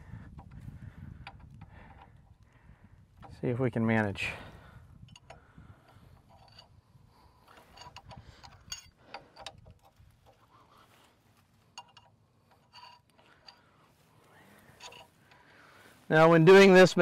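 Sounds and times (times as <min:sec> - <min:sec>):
faint metallic clicks of tools: 0:00.3 - 0:02.6, 0:05.0 - 0:15.8.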